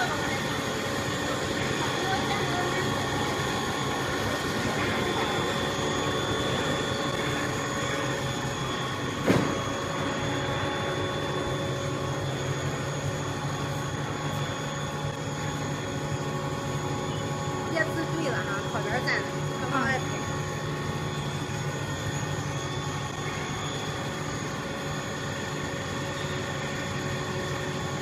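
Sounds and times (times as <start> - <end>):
machine drone with whining tones: 0.0 - 28.0
sharp knock: 9.2 - 9.6.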